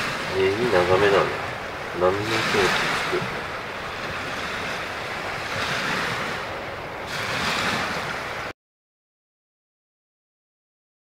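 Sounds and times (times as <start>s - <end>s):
waves washing against shore: 0.0s - 8.5s
wind on microphone: 0.0s - 8.5s.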